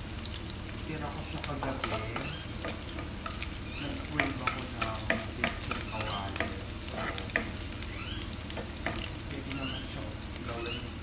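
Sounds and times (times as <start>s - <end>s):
garlic and onions sizzling in oil: 0.0s - 11.0s
spatula stirring and scraping: 1.2s - 9.9s
spatula clicking against pan: 1.4s - 7.6s.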